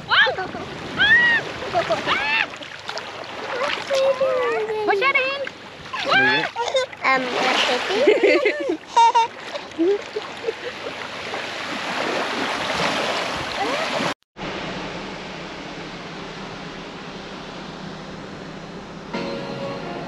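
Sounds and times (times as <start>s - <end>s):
water lapping at shoreline: 0.0s - 14.2s
vehicle cabin drone: 14.4s - 20.0s.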